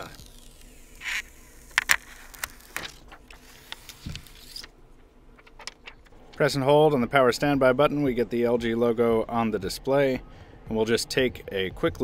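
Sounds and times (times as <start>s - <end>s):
plastic film peeling and crackling: 0.0s - 6.2s.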